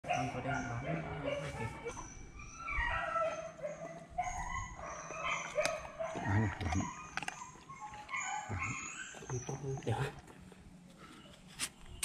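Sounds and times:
puppy whining: 1.2 - 9.8
carrot crunching: 5.2 - 8.2.

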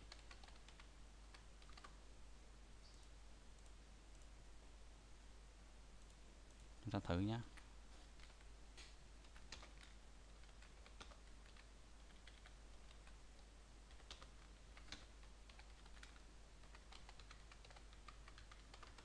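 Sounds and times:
faint keyboard typing: 0.0 - 2.0, 6.0 - 19.0.

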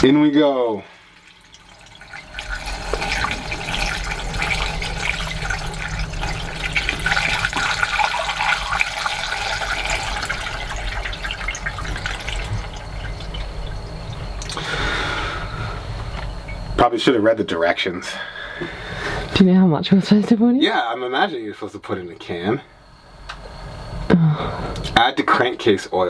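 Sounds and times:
steady low hum: 0.0 - 26.0
liquid pouring from bottle: 1.1 - 14.7.

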